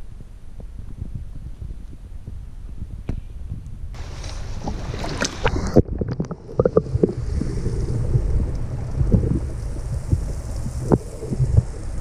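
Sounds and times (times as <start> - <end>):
muffled underwater rumble: 0.0 - 12.0
wind rumbling on microphone: 0.0 - 12.0
water splashing and sloshing: 4.0 - 12.0.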